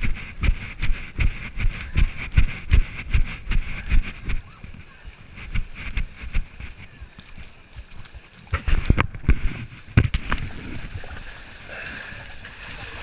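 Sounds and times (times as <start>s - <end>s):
footsteps sloshing through water: 0.0s - 13.0s
faint voices: 1.6s - 8.5s.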